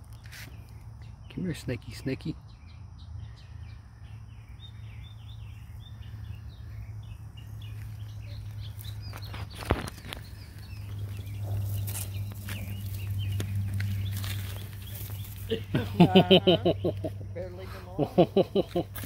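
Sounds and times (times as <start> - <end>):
small bird chirping: 0.0 - 19.0
low hum: 2.7 - 17.4.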